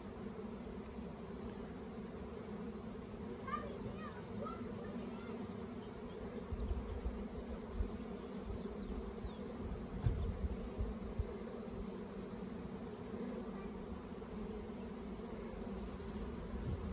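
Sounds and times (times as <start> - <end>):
bee swarm buzzing: 0.0 - 16.9.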